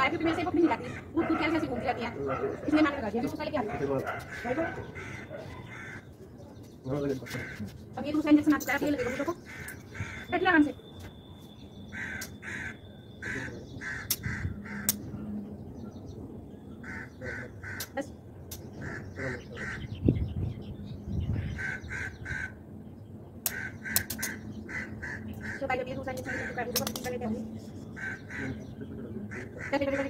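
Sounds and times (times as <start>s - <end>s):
crows cawing: 0.3s - 1.6s, 4.3s - 6.3s, 7.2s - 7.8s, 8.9s - 10.4s, 11.9s - 15.0s, 16.8s - 20.0s, 21.4s - 22.6s, 23.4s - 27.1s, 27.9s - 30.0s.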